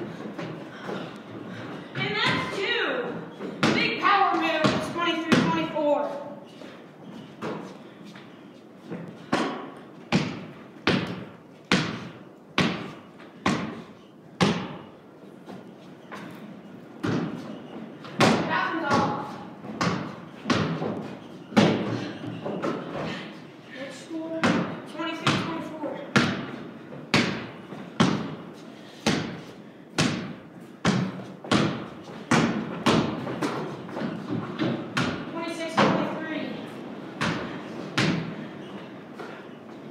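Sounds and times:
basketball bouncing on wooden floor: 4.6s - 5.7s, 9.3s - 13.8s, 14.4s - 14.9s, 17.0s - 22.9s, 24.4s - 28.4s, 30.0s - 36.0s.

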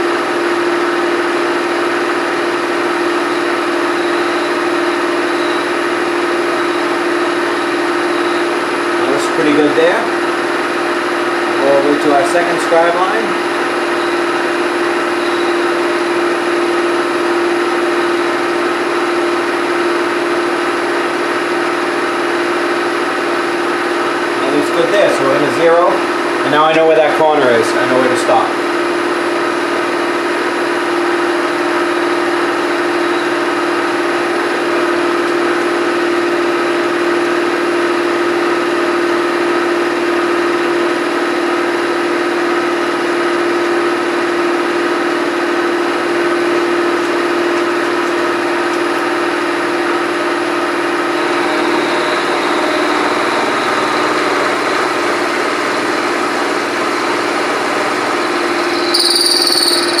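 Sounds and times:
milling machine hum: 0.0s - 26.4s, 46.5s - 60.0s.

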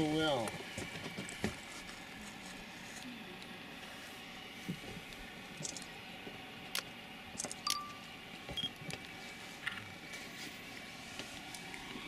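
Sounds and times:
short beep: 7.7s - 8.0s.

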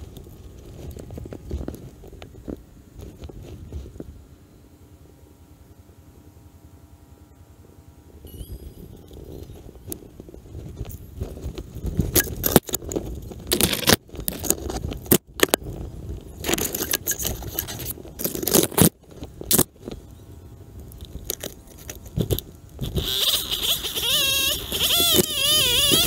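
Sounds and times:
wavering pitched tone: 8.2s - 9.8s.

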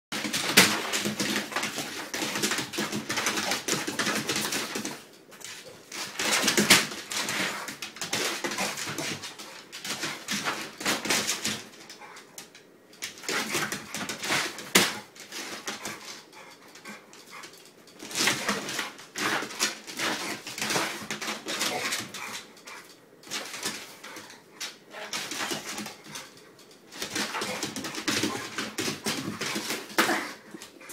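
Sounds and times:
dog claws scrabbling on wooden floor: 27.0s - 30.9s.

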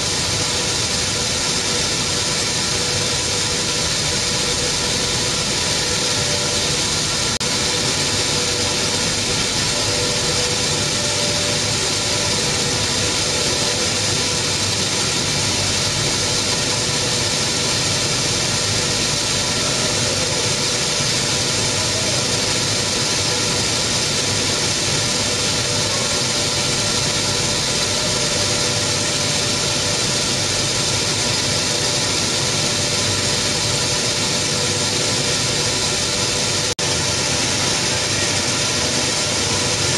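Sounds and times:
milling machinery hum and hiss: 0.0s - 39.9s.

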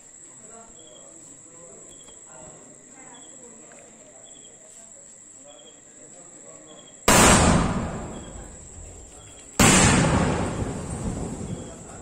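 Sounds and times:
crickets chirping: 0.0s - 12.0s
firework blast: 7.1s - 12.0s.

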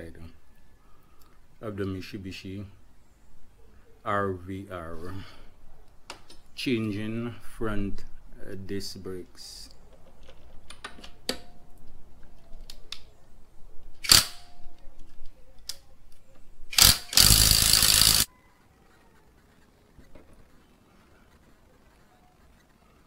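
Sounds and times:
impact wrench clicks: 14.0s - 14.4s, 16.7s - 18.3s
impact wrench hammering: 16.8s - 18.3s.

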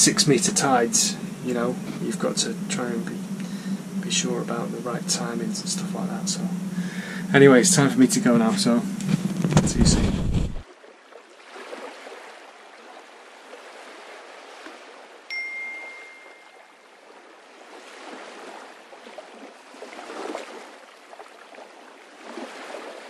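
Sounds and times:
water lapping against boat hull: 0.0s - 15.2s, 16.2s - 23.0s
bright ding: 15.3s - 16.7s.

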